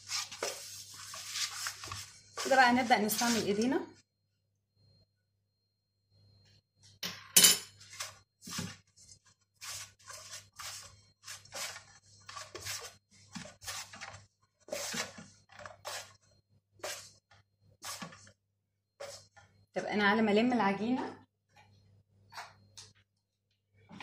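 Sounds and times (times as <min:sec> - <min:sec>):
dough kneaded in metal bowl: 0:00.0 - 0:04.0, 0:07.2 - 0:19.8.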